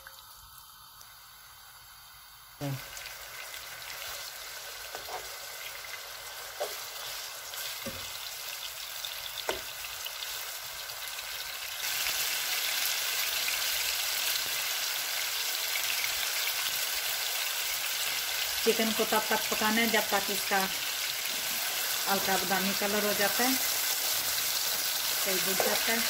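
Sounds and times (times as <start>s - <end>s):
chicken sizzling in oil: 0.0s - 26.0s
spatula knocking on pan: 7.8s - 8.1s.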